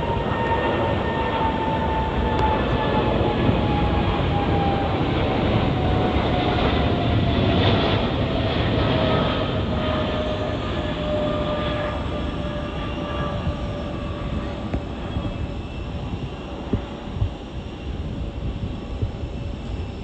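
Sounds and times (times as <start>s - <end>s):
jet engines roaring: 0.0s - 20.0s.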